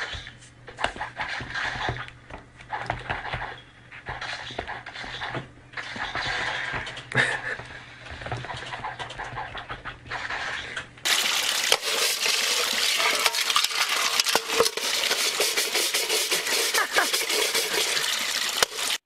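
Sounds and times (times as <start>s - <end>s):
water sloshing and splashing: 10.2s - 19.0s
metal basin clattering: 11.1s - 19.0s.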